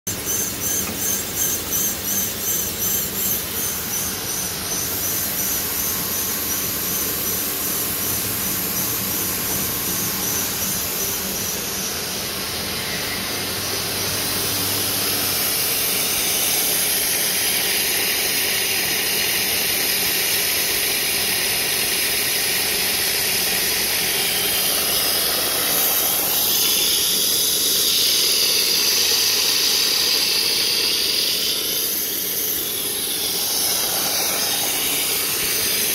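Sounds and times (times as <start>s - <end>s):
high hiss: 0.1s - 35.9s
machine hum: 0.1s - 35.9s
fast even pulsing: 30.6s - 35.9s.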